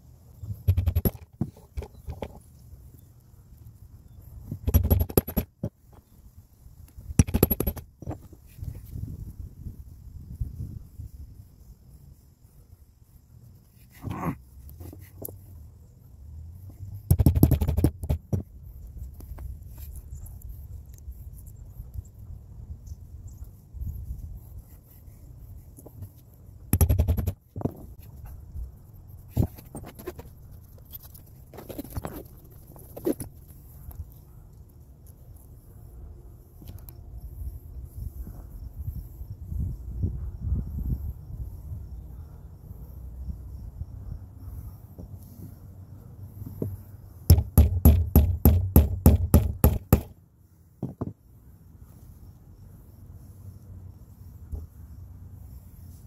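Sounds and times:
rattle of sharp clicks: 4.6s - 5.7s, 7.2s - 8.2s
taps and knocks on bench: 46.6s - 50.1s, 50.8s - 51.2s.

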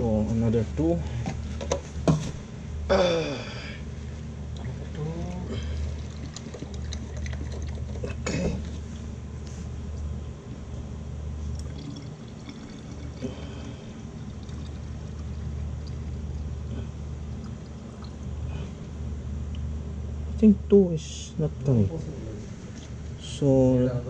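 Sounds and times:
low hum: 0.0s - 24.0s
liquid pouring into container: 4.5s - 8.8s, 11.5s - 16.6s, 17.2s - 18.3s.

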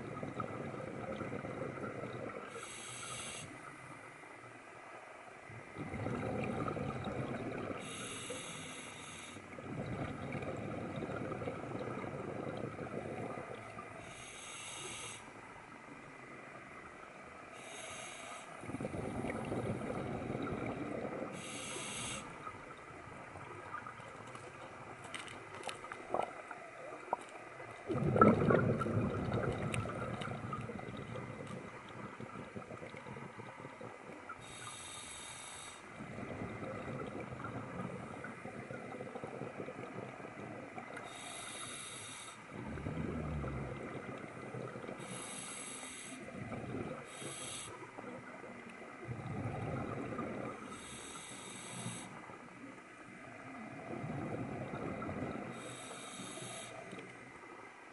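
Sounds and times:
bubbling exhaled air: 0.0s - 3.8s, 5.5s - 15.2s, 17.6s - 52.4s, 53.3s - 57.1s
regulator hissing inhalations: 2.5s - 3.6s, 7.8s - 9.5s, 14.0s - 15.3s, 17.6s - 18.7s, 21.3s - 22.4s, 34.4s - 36.0s, 41.0s - 42.5s, 45.0s - 46.3s, 47.0s - 47.9s, 50.7s - 52.2s, 55.5s - 57.0s.

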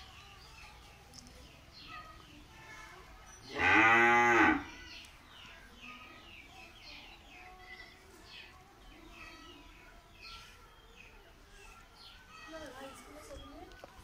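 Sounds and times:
small birds chirping: 0.0s - 14.0s
cow mooing: 3.5s - 4.7s.

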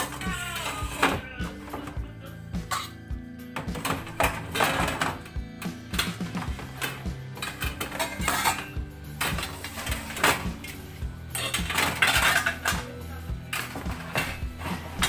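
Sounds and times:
background music: 0.0s - 15.0s
pots and pans clanking: 2.6s - 3.0s, 3.6s - 15.0s.

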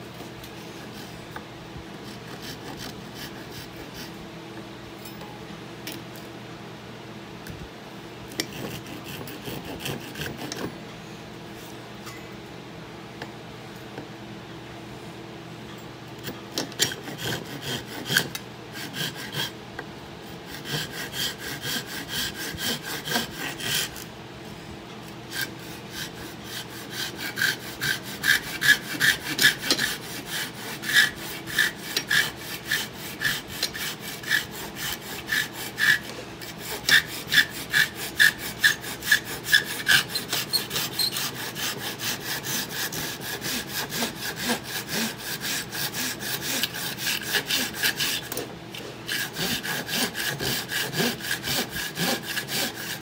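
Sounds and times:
hand saw cutting wood: 2.0s - 4.2s, 8.4s - 10.7s, 16.2s - 19.6s, 20.5s - 24.1s, 25.3s - 53.0s.

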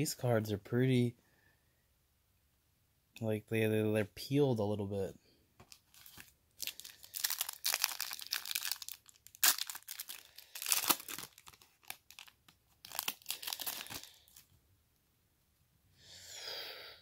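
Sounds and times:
foil wrapper crinkling and tearing: 5.7s - 14.5s.

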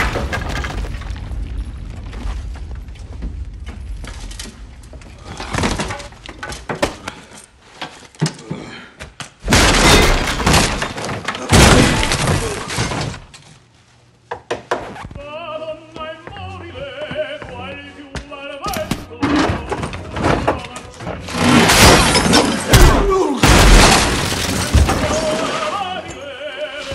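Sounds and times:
porcelain breaking: 9.5s - 13.3s, 21.3s - 26.2s
music with wavering singing voice: 15.1s - 21.3s, 25.0s - 26.9s.

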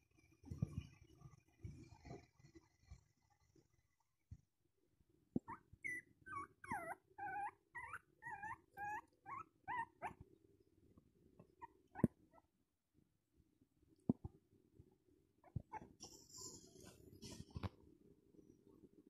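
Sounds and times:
puppy whimpering: 5.4s - 10.2s, 11.6s - 12.5s.

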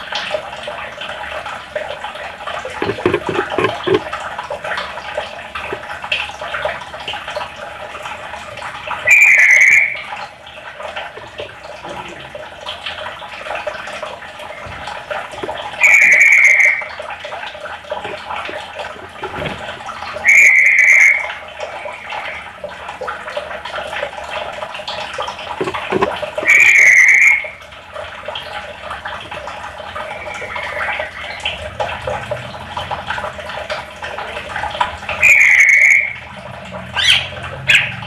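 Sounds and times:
bird buzzy calls: 9.0s - 10.1s, 15.8s - 17.0s, 20.2s - 22.5s, 26.4s - 27.6s, 35.2s - 36.2s, 37.0s - 38.0s
rapid bird chatter: 15.8s - 16.9s.

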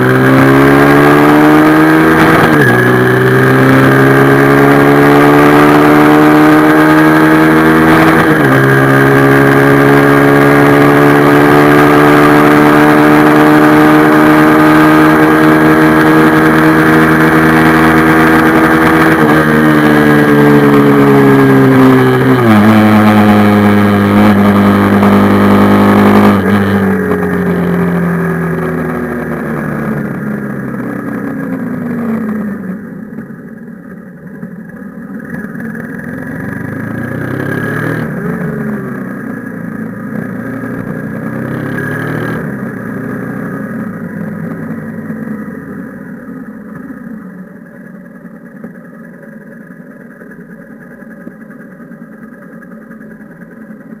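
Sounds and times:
motorcycle engine: 0.0s - 54.0s.

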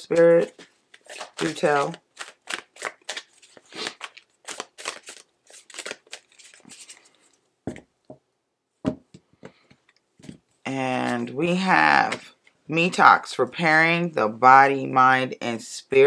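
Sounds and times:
cards being shuffled: 0.0s - 7.4s.

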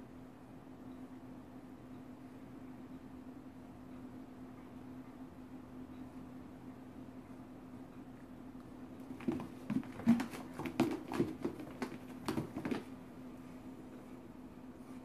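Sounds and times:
faint steady hum: 0.0s - 15.0s
cats scuffling on carpet: 9.0s - 15.0s.

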